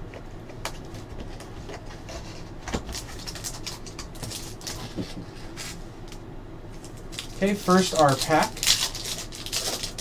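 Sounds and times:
packaging crackling and rustling: 1.8 - 5.8, 6.8 - 10.0.

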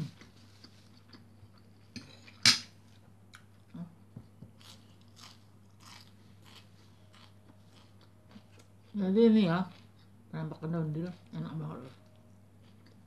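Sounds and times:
person chewing crunchy food: 4.5 - 9.0, 11.8 - 13.0.

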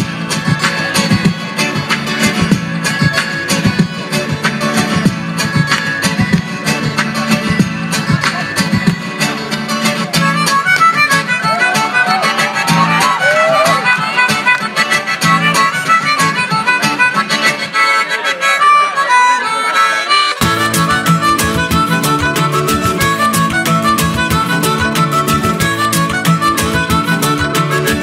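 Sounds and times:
harmonica bending melody: 0.0 - 28.0
looped guitar and percussion: 0.0 - 28.0
deep bass beat: 20.4 - 28.0.

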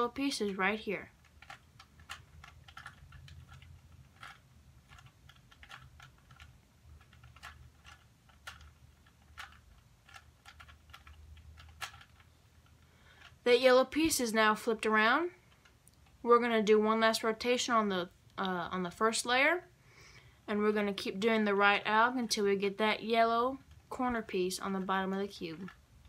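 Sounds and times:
plastic puzzle cube clicking: 0.5 - 13.4.

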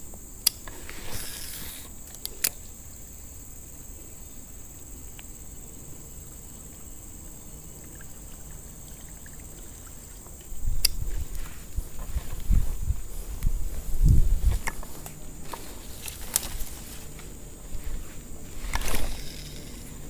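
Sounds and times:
high-pitched insect drone: 0.0 - 20.0
sharp clicks: 0.4 - 0.8, 2.1 - 2.7, 10.8 - 11.0.

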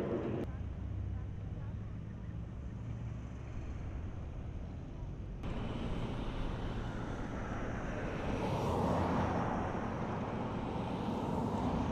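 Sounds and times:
vehicle passing by: 5.4 - 11.9.

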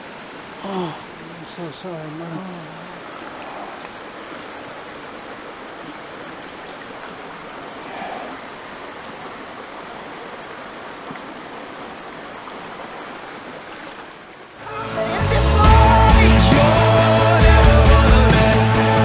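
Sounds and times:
creek water running over rocks: 0.0 - 17.7.

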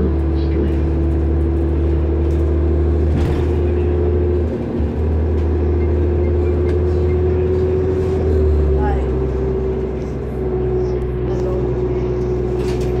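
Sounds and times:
bus engine drone: 0.0 - 13.0.

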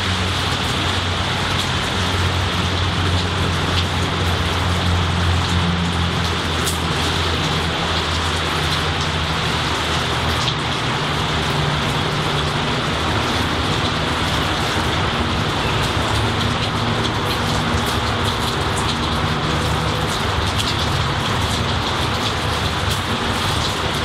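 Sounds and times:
steady rain on trees: 0.0 - 24.0.

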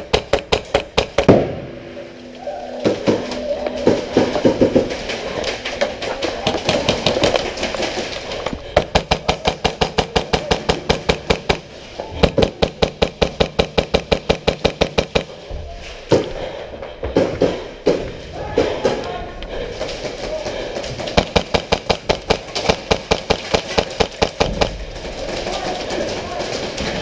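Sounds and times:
airsoft guns firing: 0.0 - 1.6, 2.8 - 15.4, 19.8 - 27.0.

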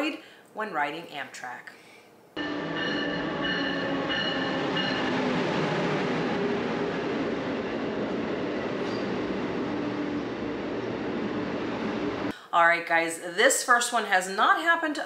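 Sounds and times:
pulsed ringing tone: 2.4 - 5.6
train rumbling on rails: 2.4 - 12.3.

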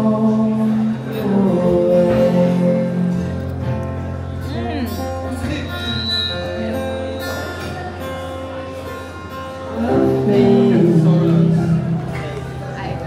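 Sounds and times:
person singing: 0.0 - 3.5, 9.7 - 12.3
acoustic guitar: 0.0 - 13.0.

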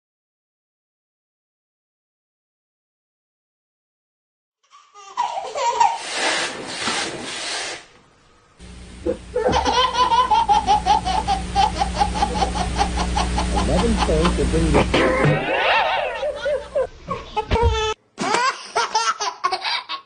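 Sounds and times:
baby laughing: 4.7 - 6.5, 9.1 - 20.0
steady low hum: 8.1 - 17.5.

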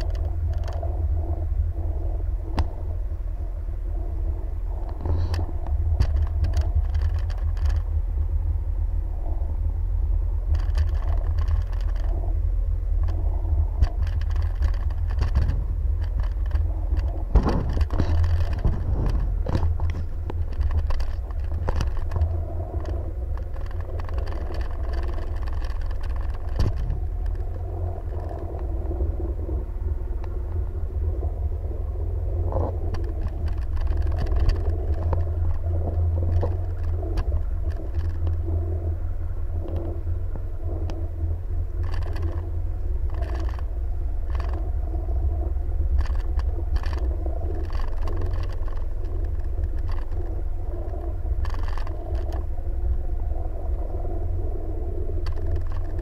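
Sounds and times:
jet ski engine rumble: 0.0 - 56.0.

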